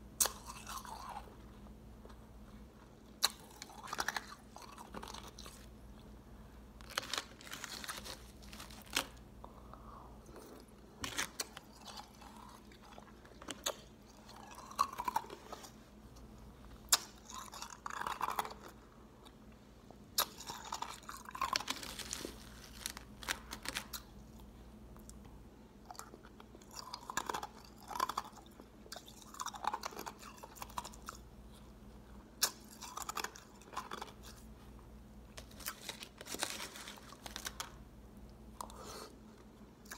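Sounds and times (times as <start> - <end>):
crushed ice being chewed: 0.2 - 6.1, 6.8 - 9.2, 10.2 - 16.3, 16.9 - 19.4, 20.2 - 25.2, 25.8 - 31.7, 32.3 - 34.5.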